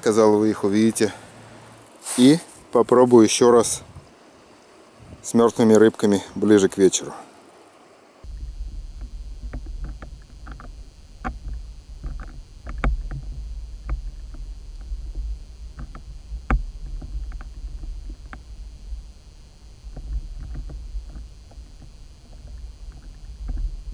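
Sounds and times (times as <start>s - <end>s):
underwater low rumble: 8.2s - 23.9s
sharp underwater clicks: 8.4s - 18.6s.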